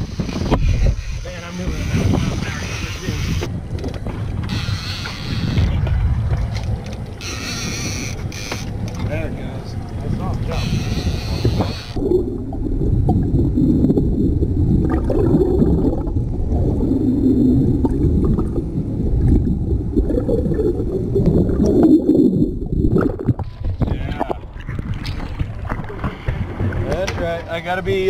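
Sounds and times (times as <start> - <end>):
muffled underwater gurgling: 10.2 - 26.9.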